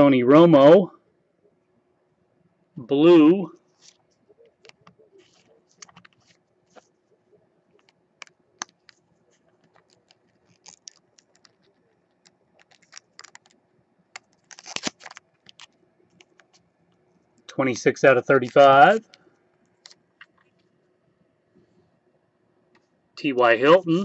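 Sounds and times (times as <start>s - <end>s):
cards rustling: 3.7s - 7.1s, 7.7s - 16.6s, 18.3s - 19.1s.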